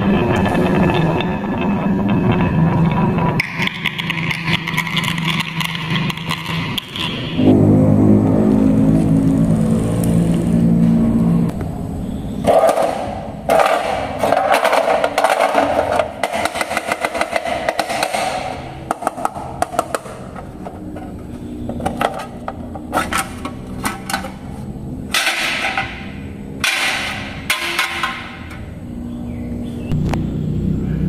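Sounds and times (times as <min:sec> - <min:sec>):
scraping on metal tin: 0:03.3 - 0:07.4, 0:12.5 - 0:28.8.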